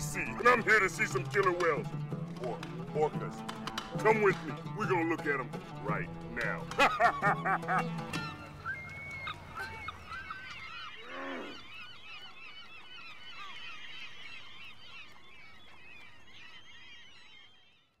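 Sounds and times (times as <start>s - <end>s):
animal chirps and squeals: 8.2s - 14.4s
low honk-like animal call: 10.9s - 11.7s.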